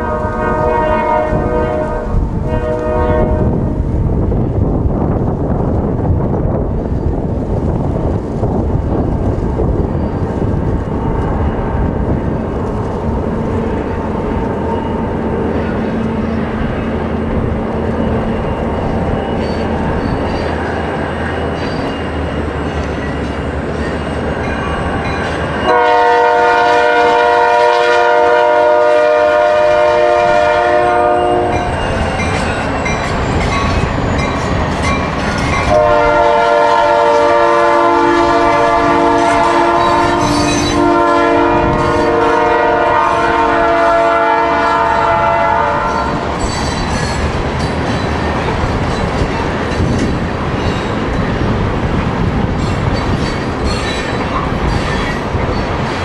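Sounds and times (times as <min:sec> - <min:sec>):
locomotive air horn blasts: 0:00.0 - 0:03.7, 0:25.7 - 0:31.8, 0:35.7 - 0:46.3
train rumbling: 0:00.0 - 0:56.0.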